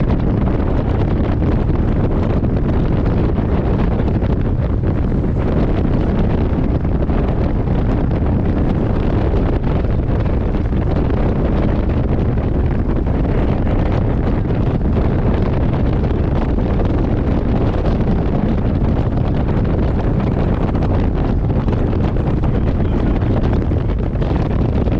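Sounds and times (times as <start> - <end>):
boat running noise: 0.0 - 24.9
strong wind buffeting microphone: 0.0 - 24.9.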